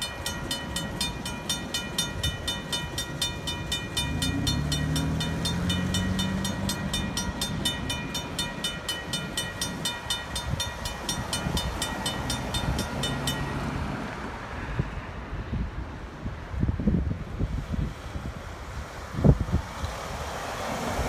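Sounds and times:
railway crossing bell ringing: 0.0 - 14.5
cars driving past: 0.0 - 16.1, 18.8 - 21.0.

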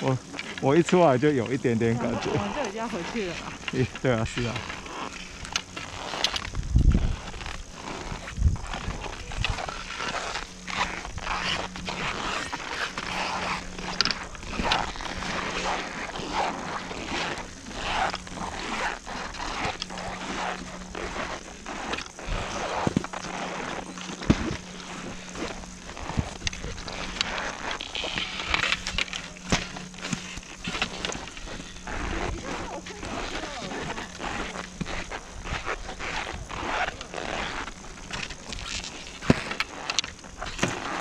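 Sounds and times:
footsteps crunching on snow: 0.0 - 41.0.

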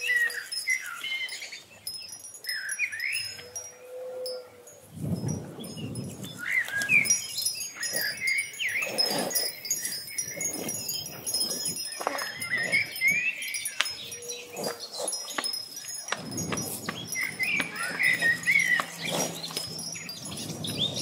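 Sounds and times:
wind chimes tinkling: 0.0 - 21.0
gliding whistle-like tones: 15.7 - 21.0.

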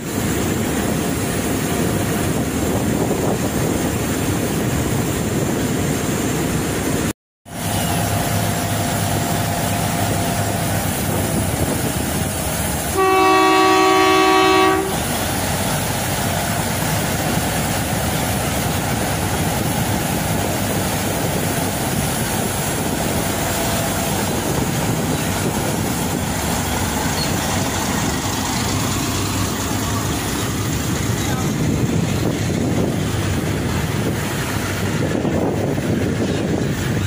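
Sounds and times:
diesel locomotive engine running: 0.0 - 37.0
locomotive horn blast: 12.8 - 15.2.

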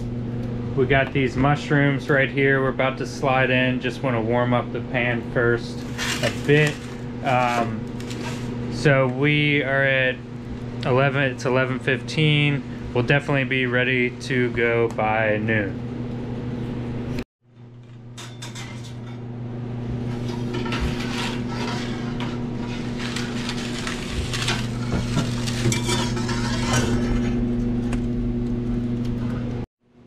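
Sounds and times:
fan humming: 0.0 - 29.7
mushrooms sizzling: 5.7 - 8.8, 22.4 - 26.4
metal peel scraping on pan: 5.8 - 8.6, 20.1 - 27.4.

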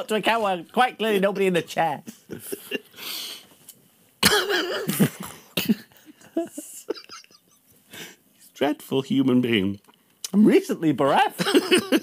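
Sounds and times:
man laughing breathily: 2.3 - 3.2.

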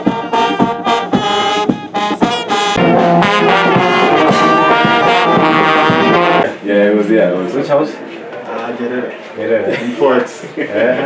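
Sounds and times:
brass band playing: 0.0 - 6.5.

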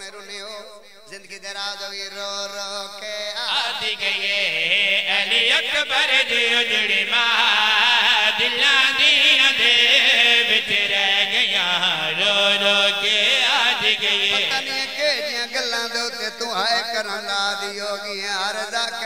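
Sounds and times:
man chanting through a microphone: 0.0 - 19.0.

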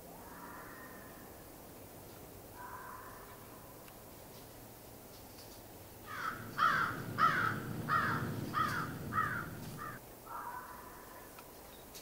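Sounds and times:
crow cawing: 0.4 - 1.2, 2.6 - 3.4, 6.0 - 11.3.

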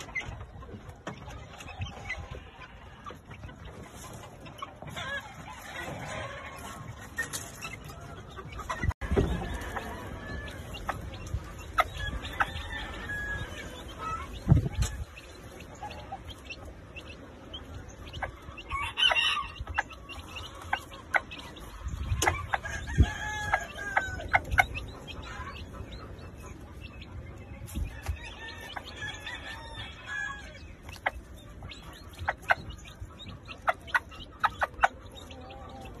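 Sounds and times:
chickens clucking: 0.0 - 36.0.

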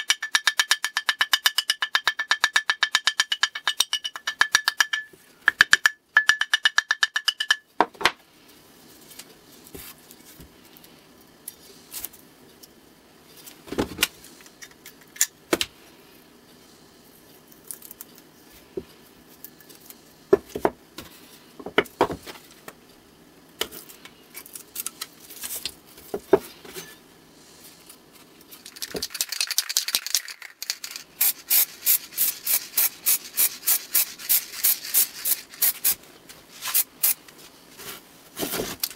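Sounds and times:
small hammer tapping metal plane: 0.0 - 7.7
tape clicking and rustling: 28.4 - 31.1
spray paint can hissing: 29.0 - 36.0, 36.6 - 37.2.

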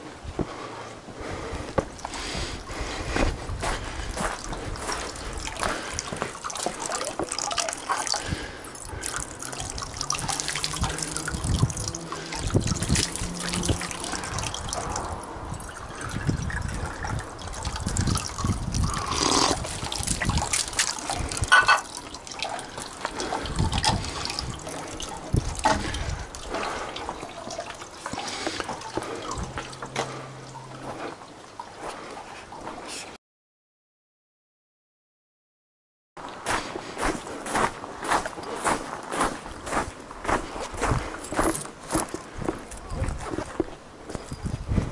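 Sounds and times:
water trickling into basin: 3.6 - 32.7.

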